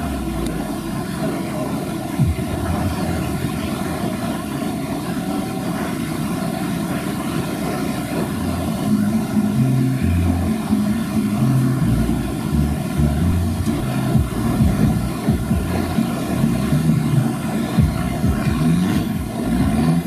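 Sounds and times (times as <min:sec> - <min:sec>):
vehicle engine running: 0:00.0 - 0:20.0.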